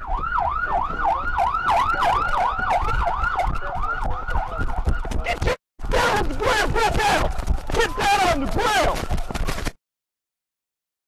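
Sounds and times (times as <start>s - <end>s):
police siren yelping: 0.0s - 7.2s.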